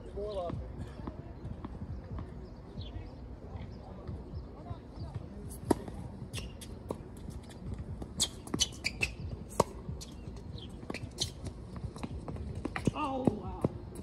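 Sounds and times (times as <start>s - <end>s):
tennis ball bounces: 5.1s - 14.0s
racquets hitting tennis ball: 5.5s - 14.0s.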